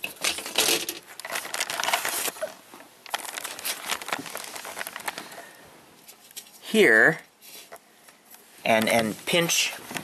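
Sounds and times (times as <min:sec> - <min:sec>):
plastic parts rustling and clicking: 0:00.0 - 0:06.6.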